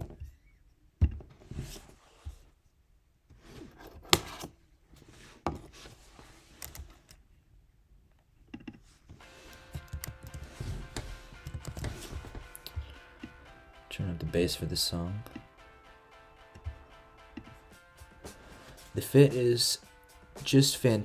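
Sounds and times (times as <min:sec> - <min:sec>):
handling noise: 0:09.1 - 0:13.4
faint music: 0:09.2 - 0:21.0
computer clicks and knocks: 0:09.7 - 0:12.9.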